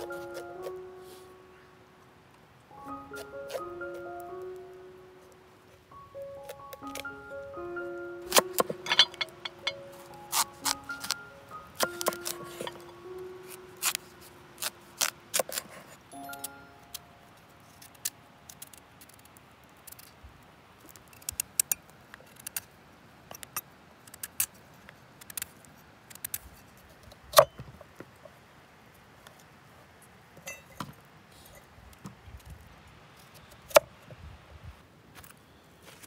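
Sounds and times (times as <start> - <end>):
knife cutting raw pumpkin: 8.3 - 11.2, 11.8 - 16.0.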